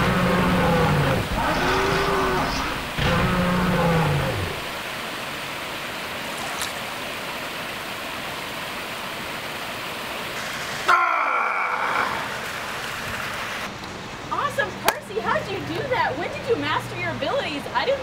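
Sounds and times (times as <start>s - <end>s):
fountain water splashing: 4.0s - 18.0s.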